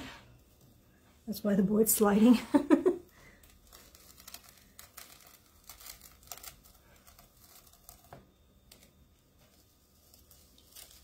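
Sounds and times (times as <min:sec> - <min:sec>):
faint crinkling: 0:02.6 - 0:11.0.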